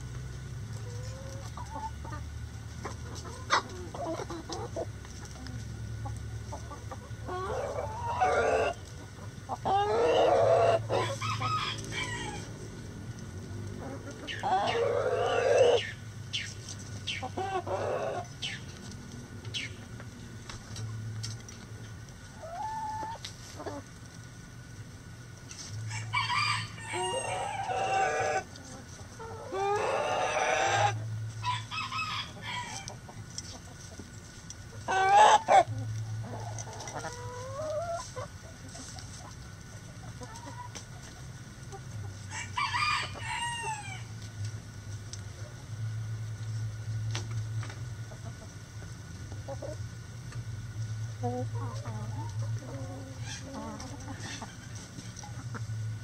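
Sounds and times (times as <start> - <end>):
hens clucking: 0.1 - 56.0
rooster crowing: 9.8 - 12.6, 25.9 - 28.4, 29.5 - 32.9, 42.3 - 44.1.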